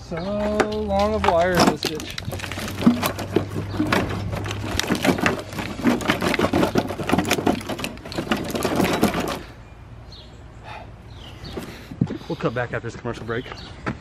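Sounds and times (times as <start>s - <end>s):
plastic clicks and rattles: 0.7s - 9.5s.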